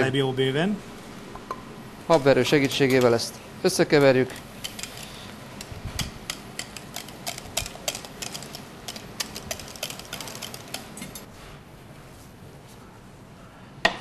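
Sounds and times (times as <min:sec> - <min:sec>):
whisk tapping metal pot: 0:05.6 - 0:11.2.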